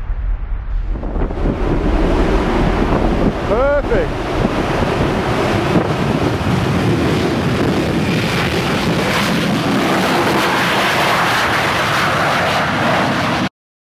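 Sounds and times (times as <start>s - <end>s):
jet engines roaring: 0.0s - 13.5s.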